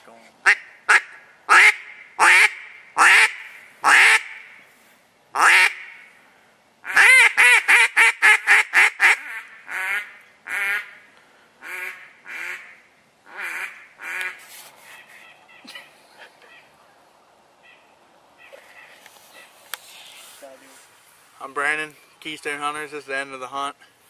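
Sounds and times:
duck call quacks: 0:00.4 - 0:04.6, 0:05.4 - 0:06.1, 0:06.8 - 0:11.0, 0:11.6 - 0:14.4.

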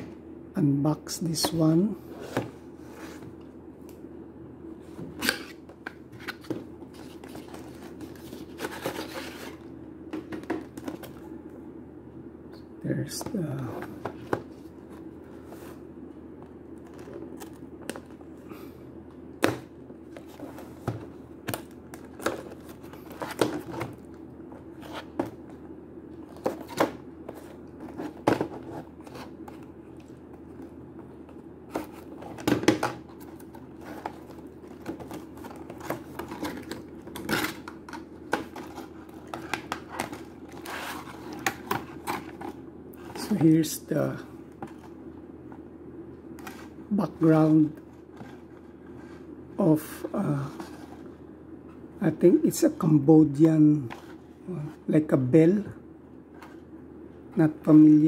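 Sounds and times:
plastic and cardboard crinkling: 0:26.2 - 0:43.5.

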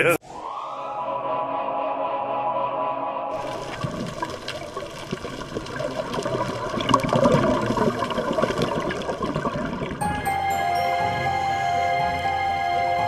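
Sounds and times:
rushing bubbling water: 0:03.4 - 0:10.1
faint steady musical tones: 0:10.0 - 0:13.0.

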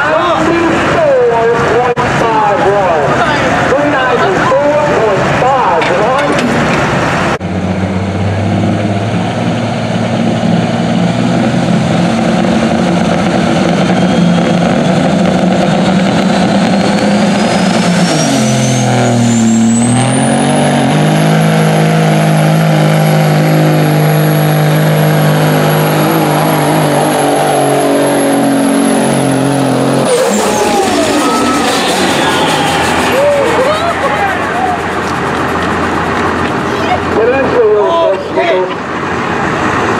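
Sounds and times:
diesel truck engine straining: 0:00.0 - 0:39.9
turbo whistle: 0:30.0 - 0:34.9.

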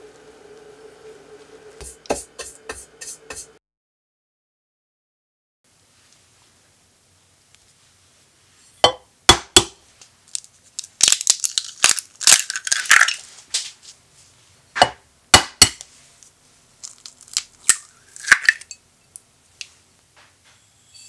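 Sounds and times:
eggshell tapping on bowl: 0:08.8 - 0:09.8
eggshell crackling apart: 0:10.3 - 0:13.2, 0:16.8 - 0:18.7.

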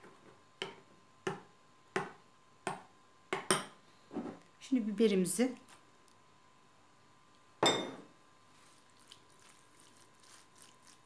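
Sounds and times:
ceramic cup clinking: 0:07.6 - 0:08.1.

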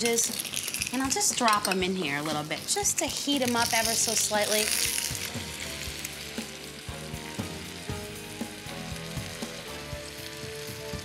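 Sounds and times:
food sizzling in a skillet: 0:00.0 - 0:11.0.

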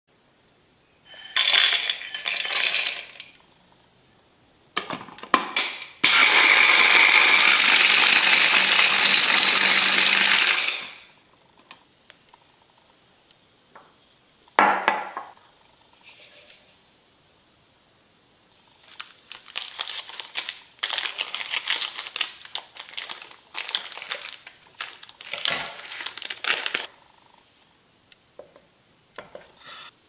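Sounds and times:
bread cubes rattling into plastic bowl: 0:01.2 - 0:03.2, 0:18.9 - 0:26.9
chopper motor grinding bread: 0:06.0 - 0:11.0.

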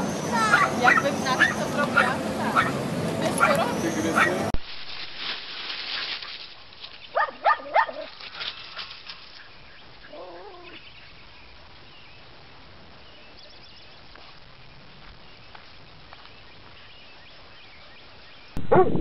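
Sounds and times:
dog barking: 0:00.4 - 0:04.5, 0:07.2 - 0:08.1.

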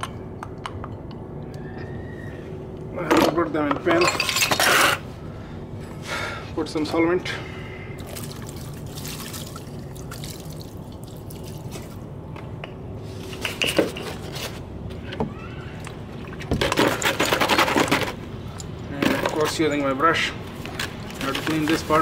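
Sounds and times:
liquid sloshing: 0:08.0 - 0:12.1.

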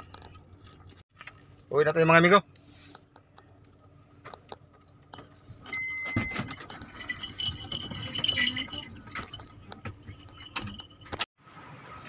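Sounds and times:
car keys jangling: 0:05.0 - 0:11.3.

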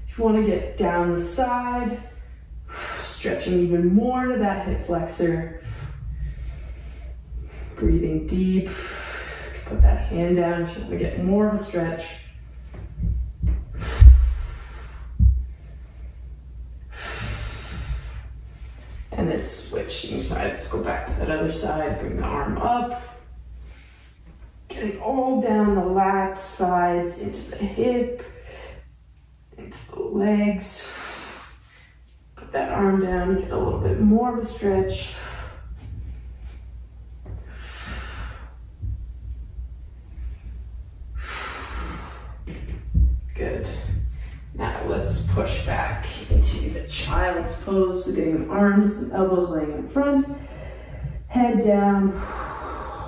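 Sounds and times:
low steady hum: 0:00.0 - 0:53.0
person breathing deeply: 0:05.6 - 0:07.8, 0:16.9 - 0:19.1, 0:40.0 - 0:42.5, 0:50.4 - 0:51.3, 0:52.1 - 0:53.0
low thump: 0:15.2 - 0:15.5, 0:42.4 - 0:44.3
man breathing deeply: 0:37.3 - 0:39.0, 0:40.0 - 0:42.6, 0:50.4 - 0:51.3, 0:52.2 - 0:53.0.

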